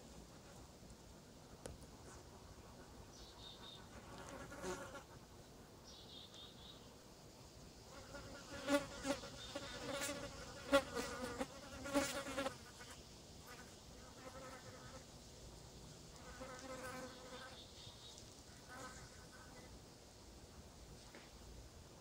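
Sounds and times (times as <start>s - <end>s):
flies buzzing: 7.9s - 15.0s.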